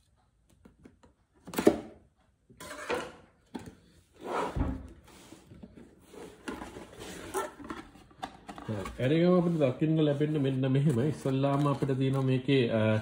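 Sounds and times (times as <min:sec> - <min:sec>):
cardboard rustling: 0:04.4 - 0:13.0.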